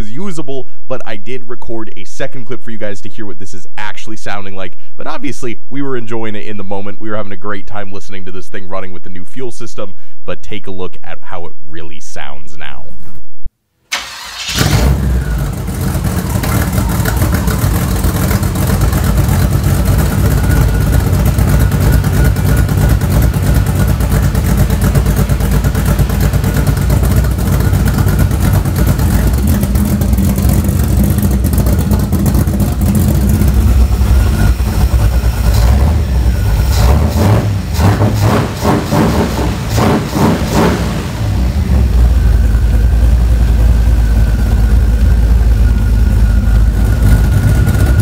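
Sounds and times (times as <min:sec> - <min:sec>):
engine revving: 0:14.0 - 0:48.0
loud engine running: 0:14.4 - 0:48.0.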